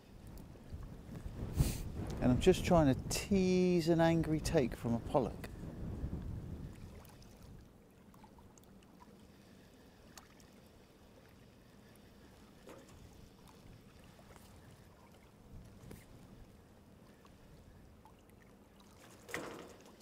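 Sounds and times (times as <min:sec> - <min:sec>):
faint water lapping: 0:05.4 - 0:20.0
small ticks: 0:10.0 - 0:10.6.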